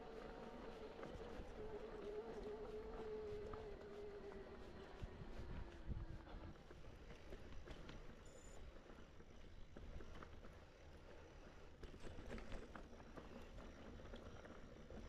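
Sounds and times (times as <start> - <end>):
mountain bike rolling on trail: 8.8 - 15.0.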